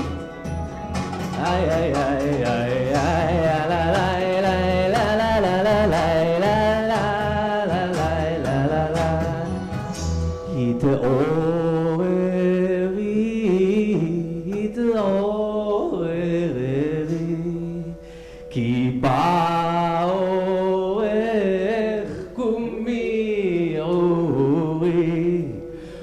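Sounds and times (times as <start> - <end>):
man singing wordless melody: 1.3 - 26.0.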